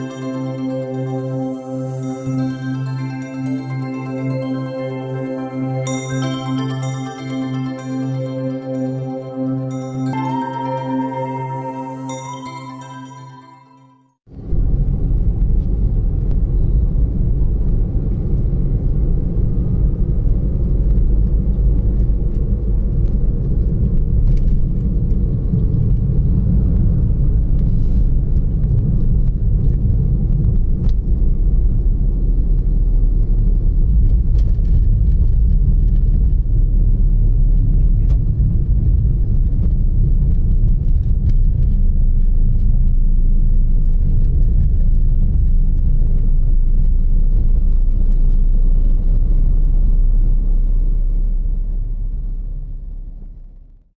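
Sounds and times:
car driving interior rumble: 14.3s - 53.8s.

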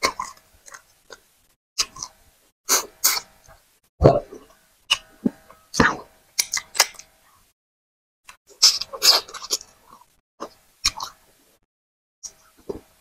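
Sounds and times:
wet chewing and mouth smacking: 8.6s - 11.2s.

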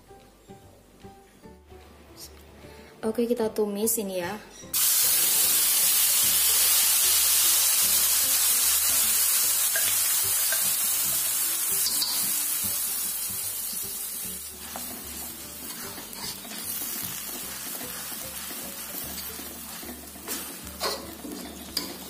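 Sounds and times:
paste sizzling in hot oil: 4.8s - 22.0s
spatula scraping wok: 8.9s - 22.0s.

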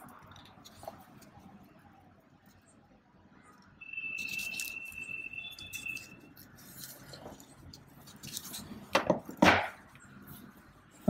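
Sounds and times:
crimping tool squeaking: 4.1s - 8.6s.

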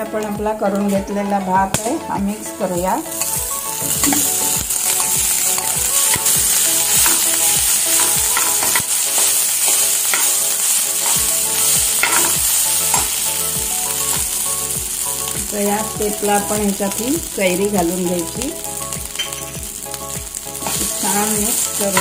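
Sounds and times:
food sizzling in oil: 0.0s - 22.0s
spoon scraping and knocking pan: 3.1s - 14.4s, 19.1s - 19.6s, 20.6s - 22.0s.

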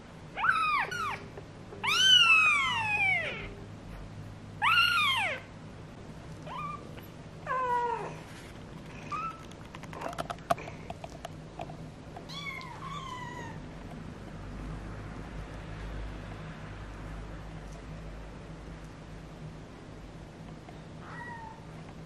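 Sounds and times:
soft clicks and rustles: 8.2s - 12.8s.

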